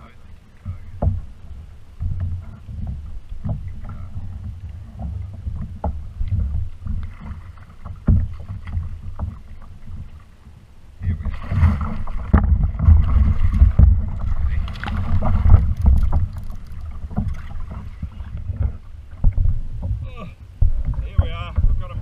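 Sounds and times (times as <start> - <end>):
water sloshing against kayak: 0.0 - 22.0
knocks on kayak: 0.7 - 1.3, 2.0 - 9.4, 11.3 - 20.0, 20.6 - 22.0
shark thrashing splashing: 11.4 - 18.4.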